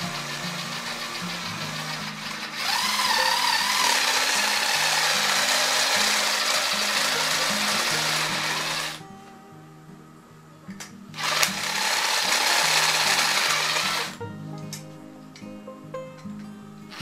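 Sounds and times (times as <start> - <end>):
impact driver drilling metal: 0.0 - 9.0, 11.2 - 14.2.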